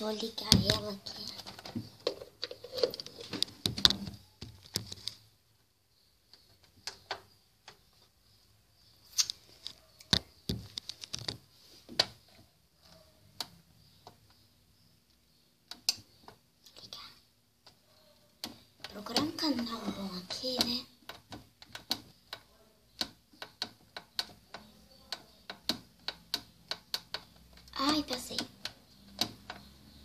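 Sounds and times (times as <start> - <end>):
light clicks and taps: 15.1 - 30.0.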